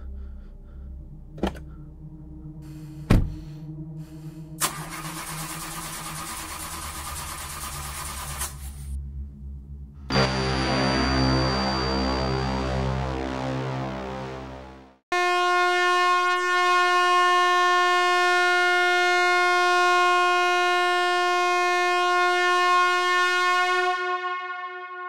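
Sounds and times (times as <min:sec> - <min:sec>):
low dark music drone: 0:00.0 - 0:15.0
loud buzzy tone: 0:09.5 - 0:17.5.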